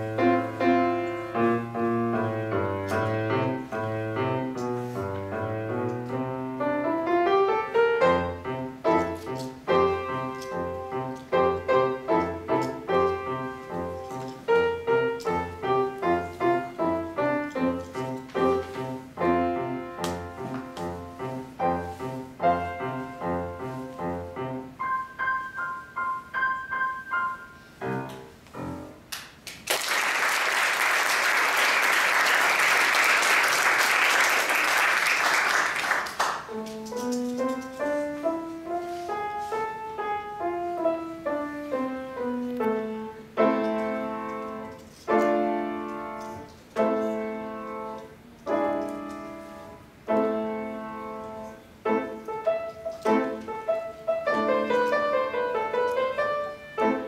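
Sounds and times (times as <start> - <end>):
grand piano playing: 0.0 - 29.1, 31.2 - 57.0
audience applause: 29.5 - 36.5.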